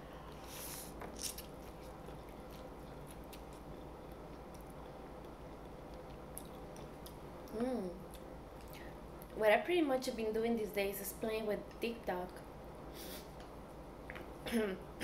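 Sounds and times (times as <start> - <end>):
quiet wet chewing: 0.3 - 9.3.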